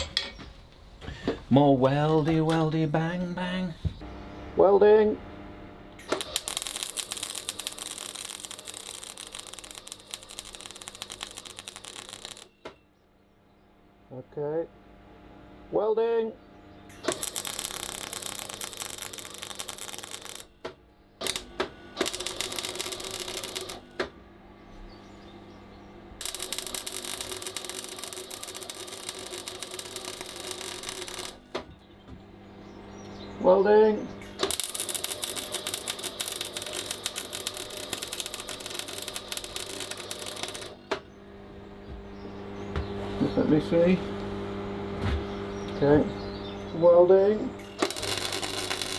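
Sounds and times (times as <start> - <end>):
welder arc crackling: 6.0 - 12.6, 17.0 - 20.5, 21.2 - 24.1, 26.2 - 31.6, 34.3 - 41.0, 47.3 - 48.9.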